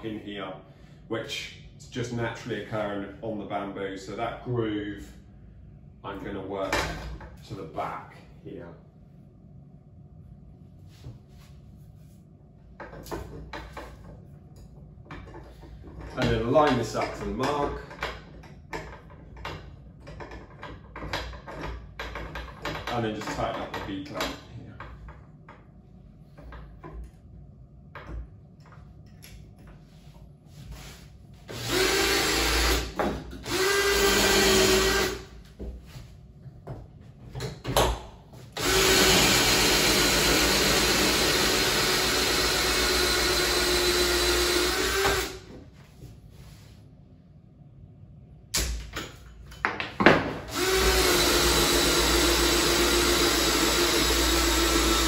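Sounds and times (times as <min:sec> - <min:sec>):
cordless drill whining: 0:31.5 - 0:35.2, 0:38.6 - 0:45.4, 0:50.5 - 0:55.0.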